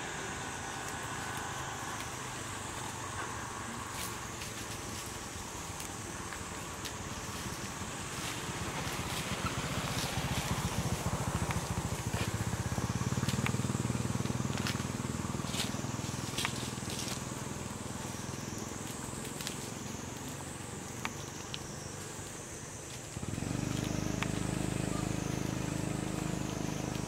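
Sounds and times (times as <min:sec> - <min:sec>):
vehicle engine passing: 0:00.0 - 0:04.4, 0:07.3 - 0:22.3, 0:23.0 - 0:27.0
twigs and dry leaves cracking: 0:18.2 - 0:27.0.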